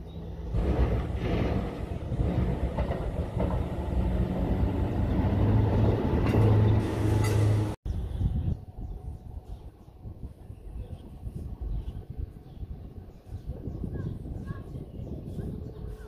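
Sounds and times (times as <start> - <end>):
diesel engine hum: 0.0 - 7.8
rail noise: 0.0 - 8.1.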